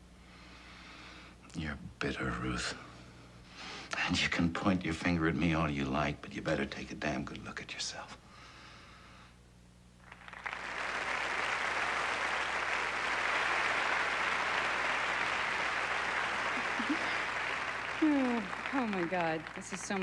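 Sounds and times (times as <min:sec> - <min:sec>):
audience applauding: 0:10.0 - 0:20.0.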